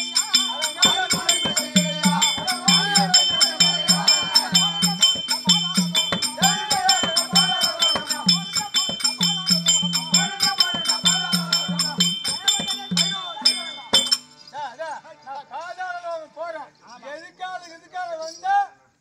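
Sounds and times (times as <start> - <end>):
hand cymbals beating: 0.0 - 14.8
ankle bells jingling: 0.0 - 18.6.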